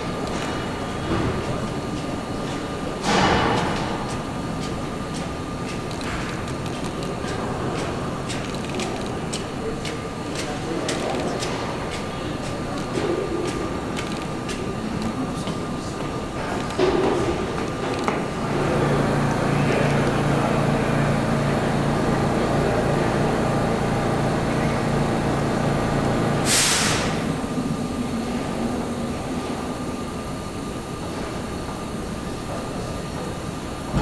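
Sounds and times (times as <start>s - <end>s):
subway car equipment hum: 0.0s - 34.0s
air brake hiss: 26.4s - 27.3s.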